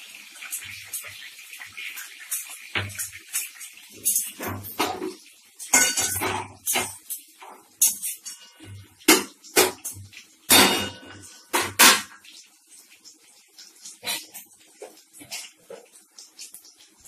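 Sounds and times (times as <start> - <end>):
onions sizzling in oil: 0.0 - 17.0
spatula scraping a pan: 2.2 - 10.0.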